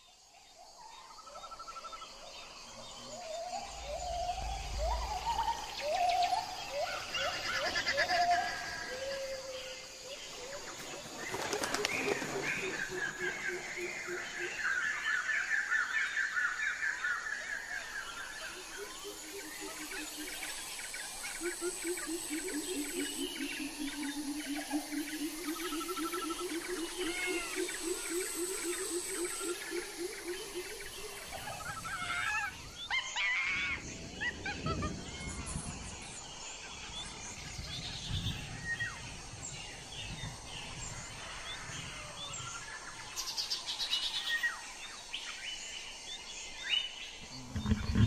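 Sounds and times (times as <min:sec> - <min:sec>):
birds chirping and calling: 0:01.2 - 0:35.9, 0:46.8 - 0:48.0
low pulsing bird call: 0:02.7 - 0:09.6.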